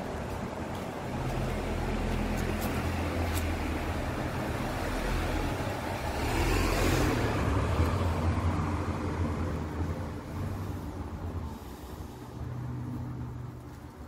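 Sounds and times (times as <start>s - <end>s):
vehicle passing by: 0.0s - 14.0s.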